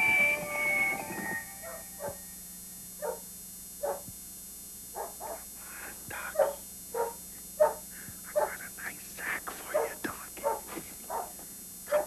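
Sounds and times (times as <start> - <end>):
dog barking: 1.6 - 2.2, 3.0 - 4.1, 4.9 - 5.5, 6.3 - 8.6, 9.7 - 12.0.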